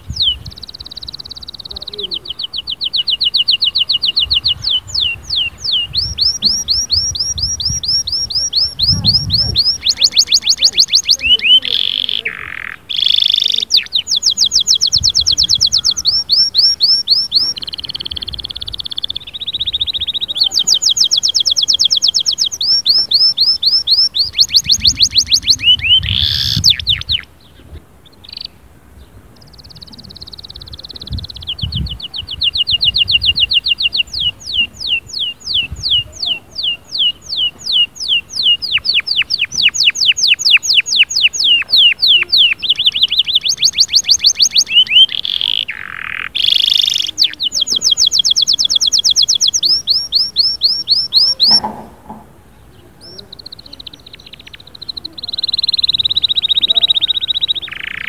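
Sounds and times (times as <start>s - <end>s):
canary trilling: 0.0s - 27.3s, 29.4s - 51.9s, 53.0s - 58.0s.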